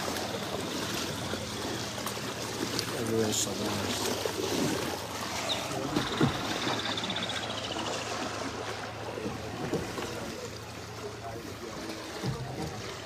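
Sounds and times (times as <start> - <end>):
low splashes: 0.0 - 13.0
water sloshing: 0.0 - 13.0.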